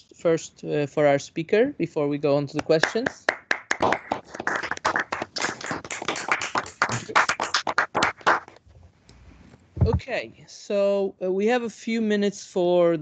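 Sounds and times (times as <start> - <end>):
hands clapping: 2.6 - 8.6.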